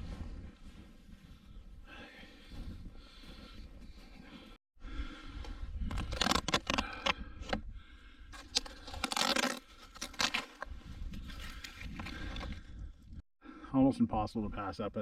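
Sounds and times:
bark being peeled and torn: 0:05.9 - 0:07.6, 0:08.4 - 0:10.7.

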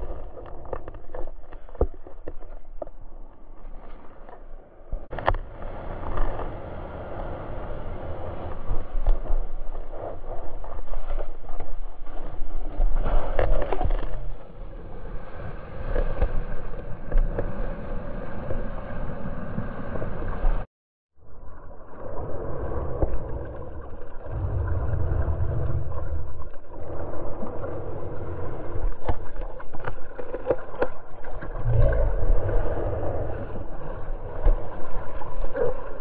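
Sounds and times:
wind rumble on microphone: 0:00.0 - 0:20.6, 0:21.2 - 0:36.0
surf splashing: 0:21.9 - 0:36.0.

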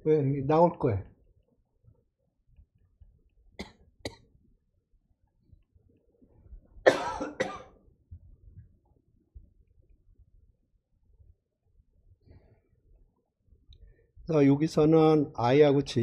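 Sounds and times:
person coughing: 0:06.9 - 0:07.8.

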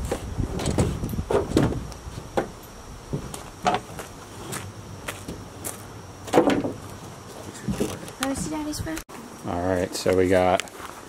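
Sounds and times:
footsteps crunching on gravel: 0:03.2 - 0:06.0, 0:09.8 - 0:11.0.

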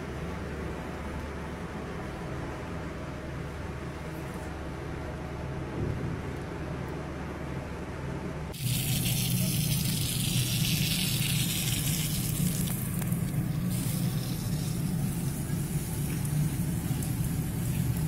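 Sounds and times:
garden hose spraying water: 0:08.6 - 0:18.0.

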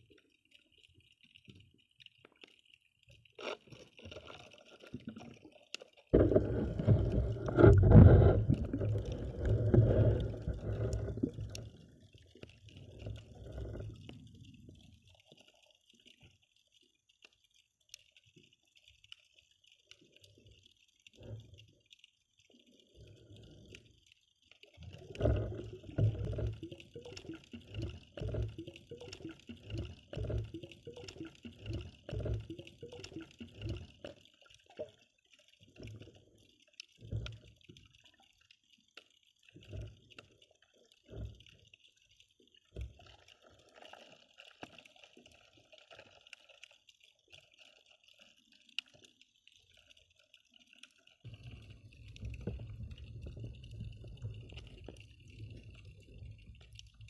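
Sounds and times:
low rumble of water movement: 0:00.0 - 0:57.0
muffled underwater thumps and sloshes: 0:06.1 - 0:14.6, 0:24.8 - 0:34.3, 0:51.3 - 0:57.0.

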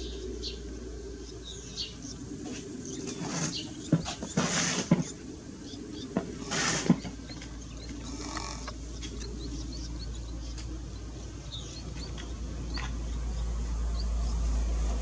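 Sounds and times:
nestling birds chirping: 0:00.0 - 0:15.0
low rumble: 0:07.2 - 0:15.0.

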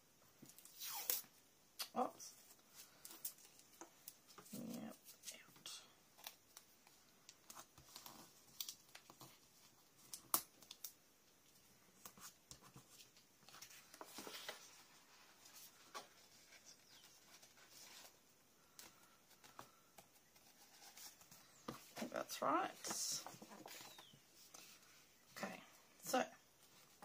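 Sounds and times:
tape tearing: 0:00.5 - 0:01.3
paper rustling: 0:12.0 - 0:22.1.

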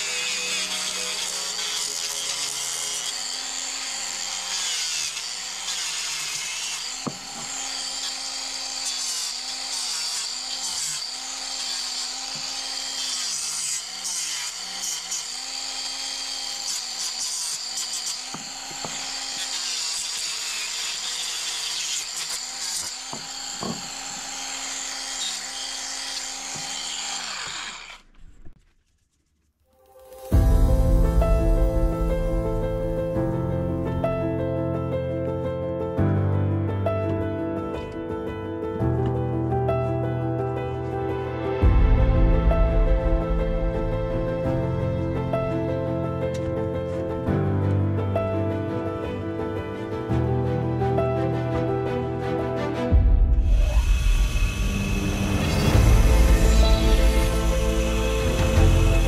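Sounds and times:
power tool motor whining: 0:00.0 - 0:28.6, 0:53.5 - 0:59.0.

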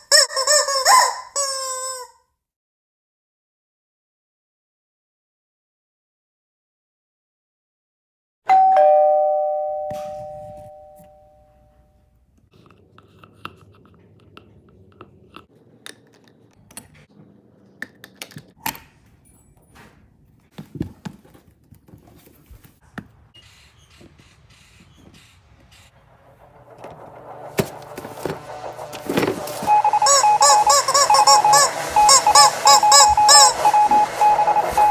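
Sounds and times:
two-tone doorbell ding-dong: 0:08.5 - 0:11.9.

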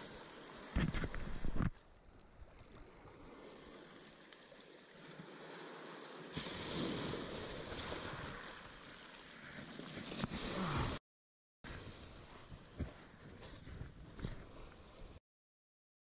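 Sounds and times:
waves washing over shingle: 0:03.9 - 0:11.0.

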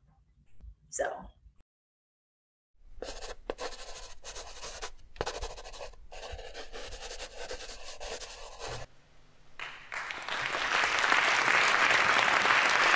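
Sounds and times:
pencil scratching on paper: 0:03.0 - 0:08.9
applause: 0:09.6 - 0:12.9.

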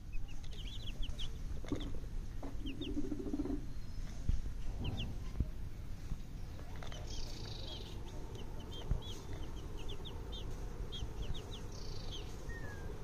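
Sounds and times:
baby chicks peeping: 0:00.0 - 0:13.0
low background noise: 0:00.0 - 0:13.0.

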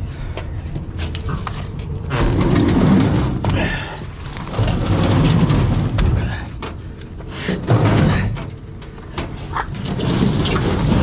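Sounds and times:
low rumble: 0:00.0 - 0:11.0
batteries scraping on metal floor: 0:04.3 - 0:06.2, 0:09.2 - 0:11.0.

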